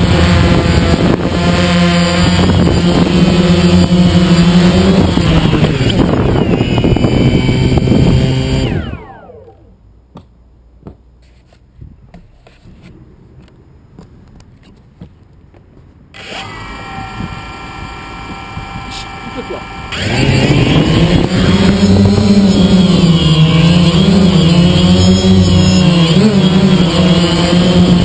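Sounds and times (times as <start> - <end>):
drone motors whining: 0.0 - 9.8, 16.1 - 28.0.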